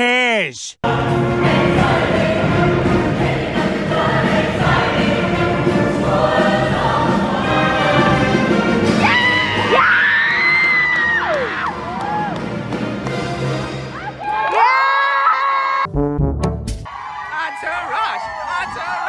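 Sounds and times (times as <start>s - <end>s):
choir singing: 0.8s - 9.0s
instrumental backing music: 15.9s - 16.9s.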